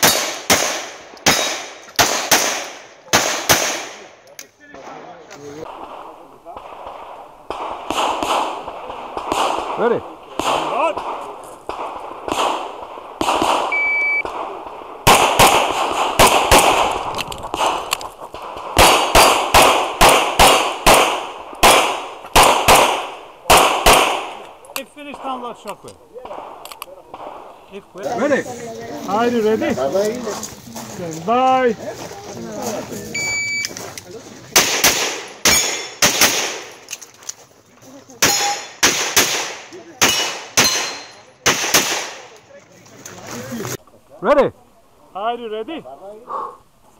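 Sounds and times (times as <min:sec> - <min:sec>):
rapid pistol fire: 0:00.0 - 0:04.0, 0:05.7 - 0:24.4, 0:34.6 - 0:36.7, 0:38.2 - 0:42.3
shot timer beep: 0:13.7 - 0:14.2, 0:33.2 - 0:33.7.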